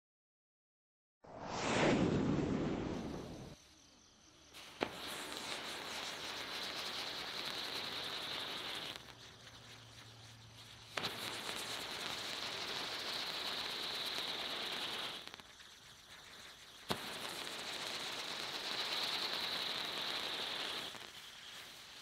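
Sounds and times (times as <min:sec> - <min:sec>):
swooshing sound effect: 0:01.2 - 0:03.6
firework crack: 0:01.3 - 0:03.6, 0:04.5 - 0:22.0
firework hissing and crackling: 0:01.3 - 0:03.6, 0:04.4 - 0:22.0.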